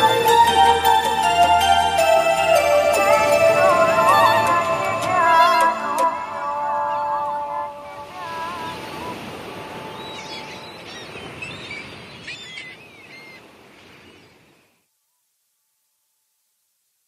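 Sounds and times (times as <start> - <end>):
surf washing: 0.0 - 14.6
birds chirping: 6.4 - 14.8.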